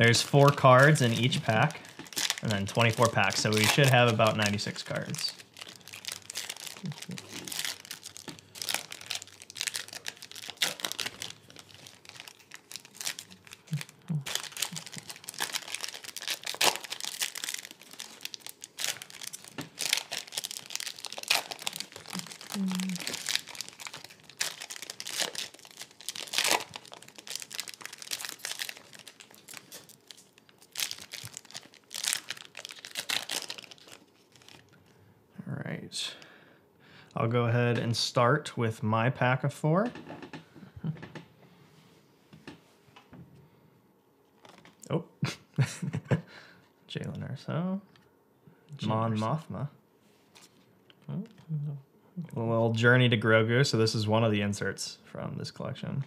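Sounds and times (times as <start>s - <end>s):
foil wrappers tearing and crinkling: 0.0s - 34.8s, 44.4s - 44.7s.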